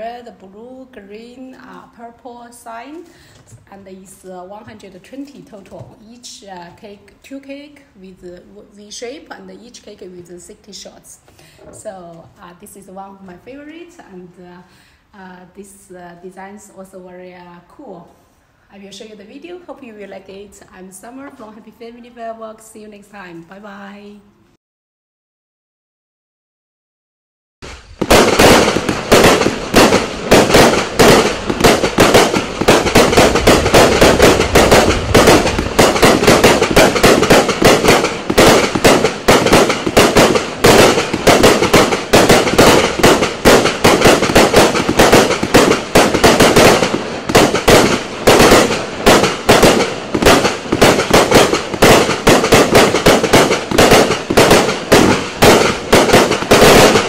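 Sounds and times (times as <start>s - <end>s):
firework barrage: 27.6s - 57.0s.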